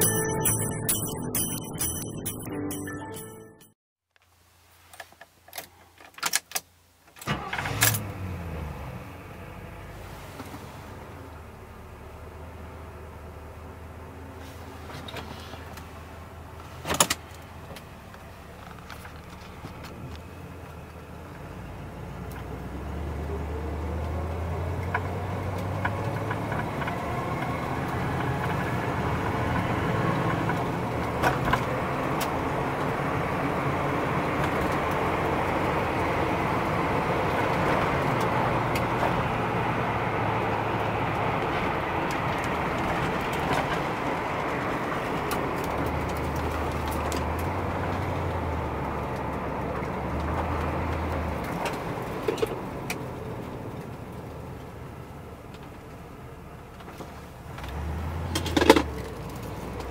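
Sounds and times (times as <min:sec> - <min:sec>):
road noise: 0:04.3 - 0:59.9
car engine from inside cabin: 0:07.3 - 0:59.9.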